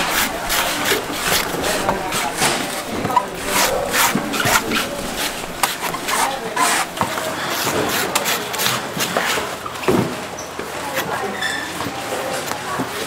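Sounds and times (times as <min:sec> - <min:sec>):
knife scraping coconut: 0:00.0 - 0:09.4.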